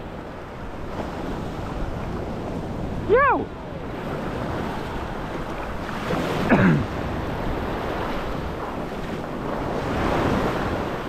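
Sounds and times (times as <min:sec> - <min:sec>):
surf washing and breaking: 0:00.0 - 0:11.0
wind buffeting microphone: 0:00.0 - 0:11.0
man shouting: 0:03.1 - 0:03.5.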